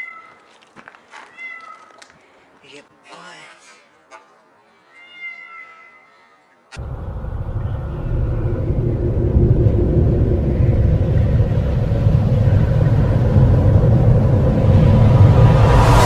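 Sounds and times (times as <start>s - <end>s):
kitten meowing: 1.3s - 2.0s, 4.9s - 6.1s
deep cinematic rumble: 6.8s - 16.0s
sharp hit: 6.8s - 16.0s.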